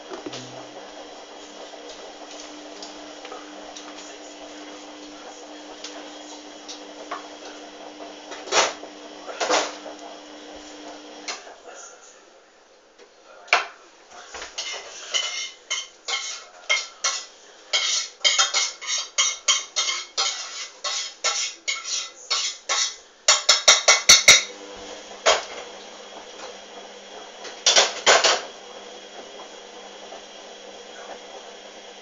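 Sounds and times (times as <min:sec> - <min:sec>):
washing machine tumbling: 0:00.0 - 0:11.4, 0:24.5 - 0:32.0.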